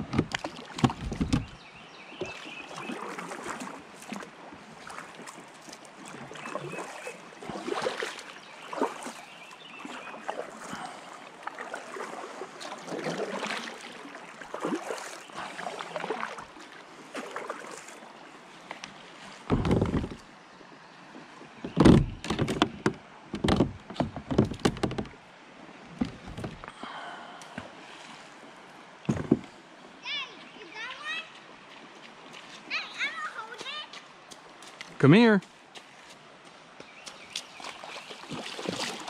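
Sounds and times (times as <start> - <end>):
knocks on plastic hull: 0.0 - 1.6, 19.5 - 20.2, 21.6 - 25.2
paddle splashing in water: 0.0 - 34.9, 36.9 - 39.0.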